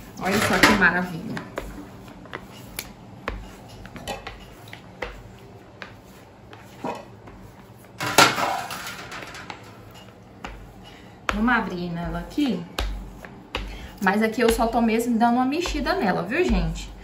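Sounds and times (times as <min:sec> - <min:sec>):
kitchenware clatter: 0:00.2 - 0:01.4, 0:03.7 - 0:04.5, 0:06.8 - 0:07.2, 0:08.0 - 0:10.2
kitchenware knocks and clicks: 0:00.3 - 0:00.9, 0:08.0 - 0:09.7.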